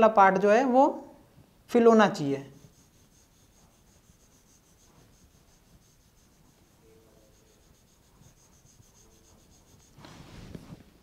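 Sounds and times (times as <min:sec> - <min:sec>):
pen scribbling on a screen: 0:02.6 - 0:10.7.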